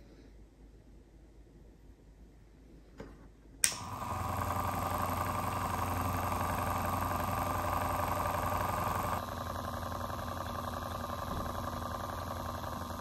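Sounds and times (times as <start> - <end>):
switch click: 3.6 - 3.9
small motor humming: 3.7 - 13.0.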